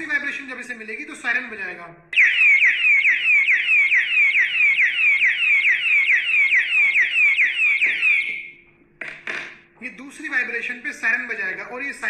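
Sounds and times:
electronic alarm siren wailing: 0:02.2 - 0:08.6.

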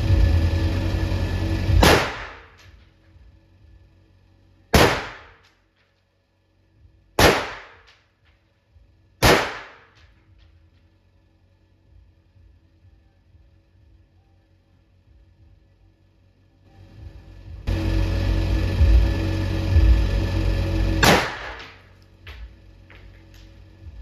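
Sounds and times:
music: 0:00.0 - 0:24.0
rifle shots hitting steel: 0:01.8 - 0:02.6, 0:04.8 - 0:05.4, 0:07.2 - 0:07.9, 0:09.2 - 0:10.0, 0:21.0 - 0:21.8.

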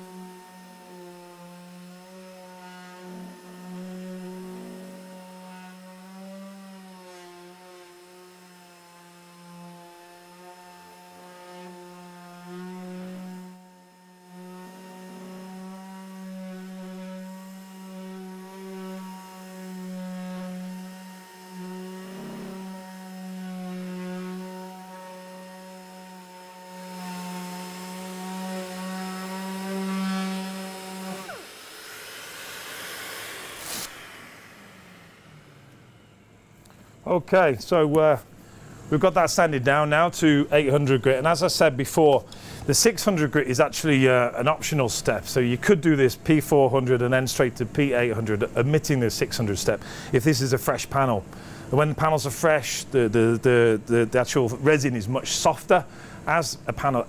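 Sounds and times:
orbital sander running: 0:00.0 - 0:37.1.

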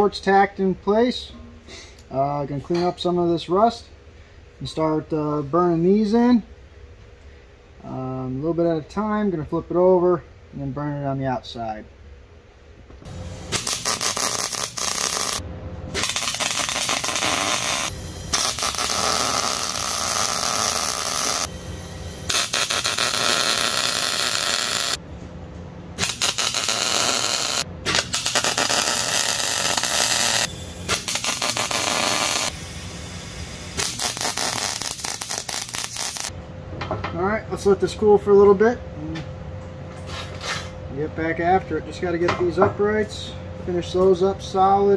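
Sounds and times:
arc welding crackling: 0:13.1 - 0:25.0, 0:26.0 - 0:36.3.

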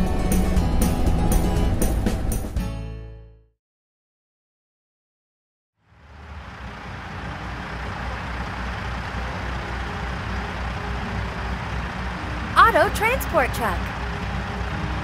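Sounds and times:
truck engine running: 0:05.9 - 0:15.0.

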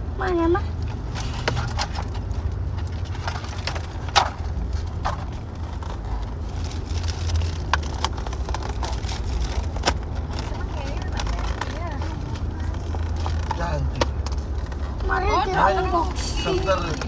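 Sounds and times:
plastic bag crinkling: 0:05.7 - 0:13.7.

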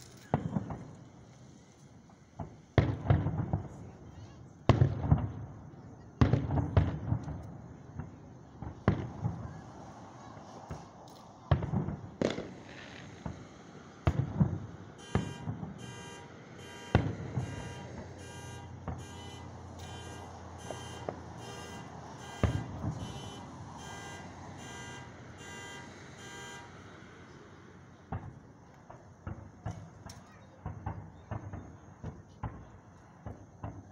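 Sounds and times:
fireworks bursting with booms: 0:00.0 - 0:26.9, 0:28.0 - 0:33.9
car alarm pulsing: 0:15.0 - 0:26.8.

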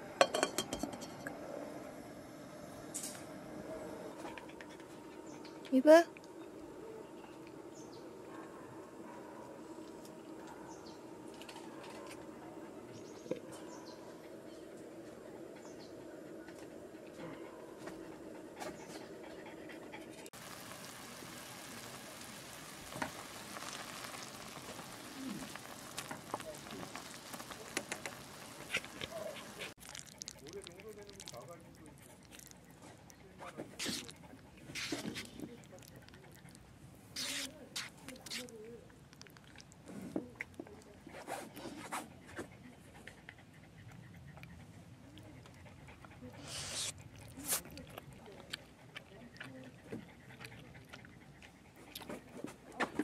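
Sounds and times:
dog panting: 0:14.1 - 0:20.4, 0:25.6 - 0:38.9, 0:40.3 - 0:53.0
noodles bubbling in pot: 0:20.4 - 0:31.6.

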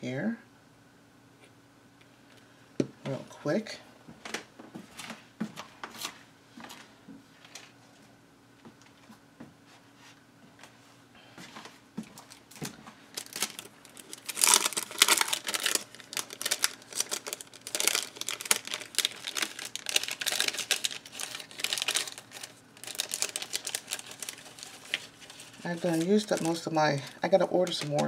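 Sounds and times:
plastic packet crinkling: 0:12.2 - 0:28.0.

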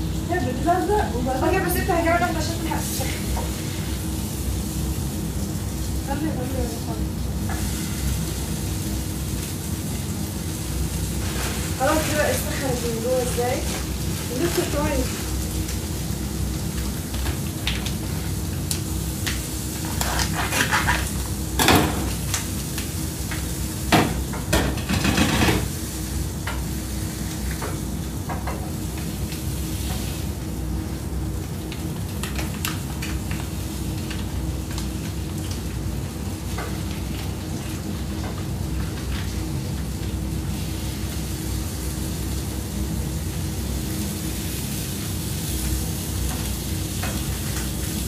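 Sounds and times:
food sizzling in oil: 0:00.0 - 0:48.0
utensil scraping a pan: 0:19.8 - 0:21.2.

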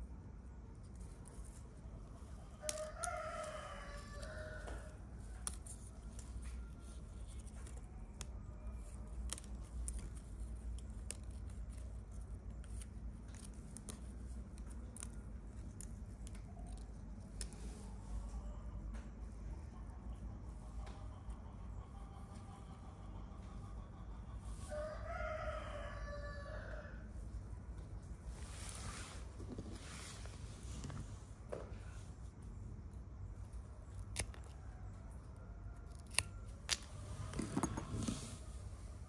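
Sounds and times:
low steady hum: 0:00.0 - 0:39.0
rooster crowing: 0:02.6 - 0:05.0, 0:24.6 - 0:27.1.

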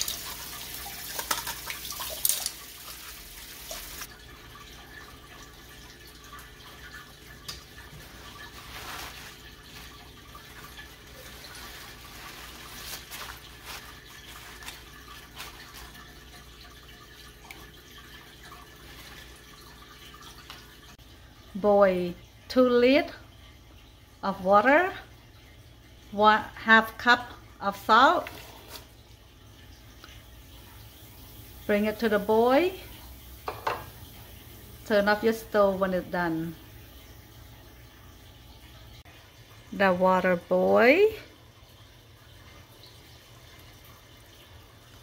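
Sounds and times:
wet leaves rustling: 0:07.9 - 0:16.4
tap running into sink: 0:33.4 - 0:34.1.

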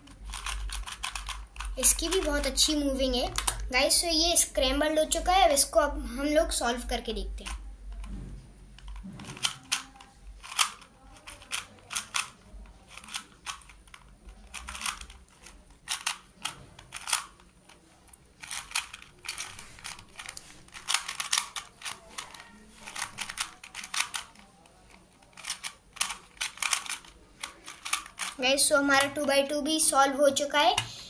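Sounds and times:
puzzle cube plastic clicks: 0:00.0 - 0:03.8, 0:08.7 - 0:29.4.

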